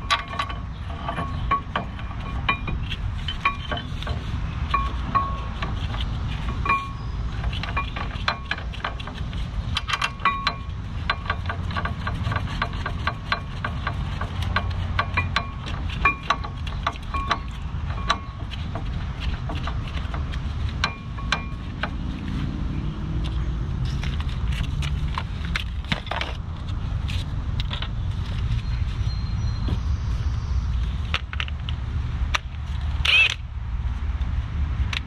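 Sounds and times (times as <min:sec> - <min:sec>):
metal tools clinking: 0:00.0 - 0:09.1.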